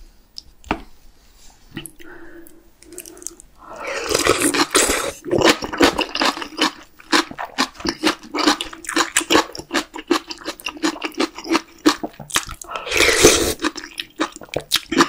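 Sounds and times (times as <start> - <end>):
person slurping soup: 2.8 - 6.5, 12.6 - 13.9
wet open-mouth chewing: 2.8 - 15.0.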